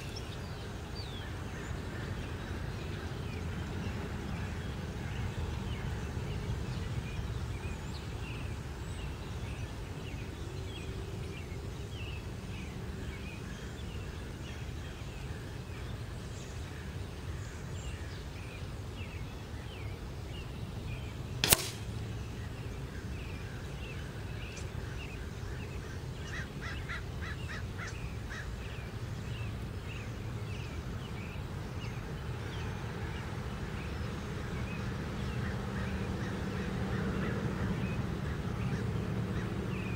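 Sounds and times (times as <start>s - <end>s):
birds chirping: 0.0s - 39.9s
pellet smacking metal can: 21.4s - 21.8s.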